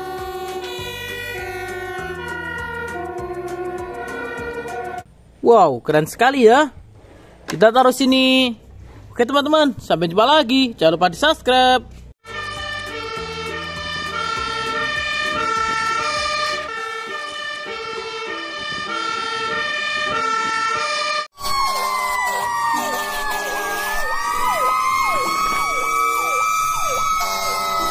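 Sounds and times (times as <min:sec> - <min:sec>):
two-tone siren: 0:00.0 - 0:05.0, 0:12.2 - 0:27.9
yelping siren: 0:00.0 - 0:05.0, 0:12.3 - 0:27.9
wailing siren: 0:00.0 - 0:05.1, 0:12.2 - 0:27.9.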